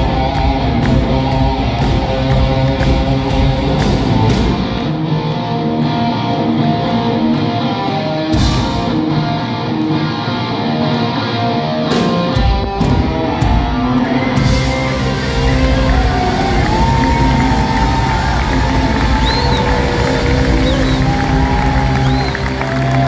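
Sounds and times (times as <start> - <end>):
live rock band playing: 0.0 - 23.0
drumbeat: 12.3 - 22.2.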